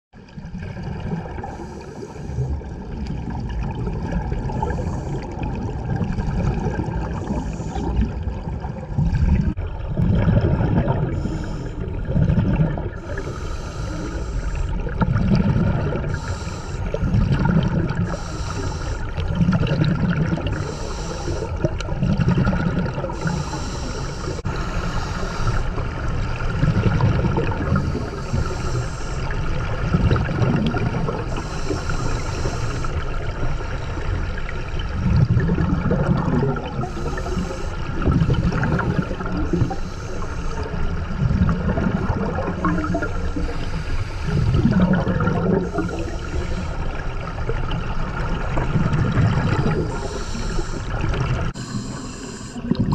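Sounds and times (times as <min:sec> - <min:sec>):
underwater exhaled bubbles rumbling: 0:00.2 - 0:52.9
hissing breath bursts: 0:13.0 - 0:14.8, 0:16.1 - 0:17.0, 0:18.0 - 0:19.2, 0:20.6 - 0:21.6, 0:23.2 - 0:25.8, 0:27.8 - 0:29.5, 0:31.2 - 0:33.0, 0:36.8 - 0:37.9, 0:43.3 - 0:44.6, 0:49.8 - 0:50.9, 0:51.6 - 0:52.7.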